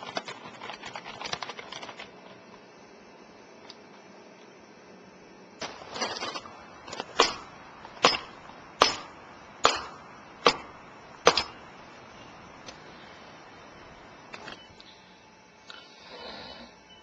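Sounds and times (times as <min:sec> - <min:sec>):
sharp knocks: 0:06.9 - 0:11.7.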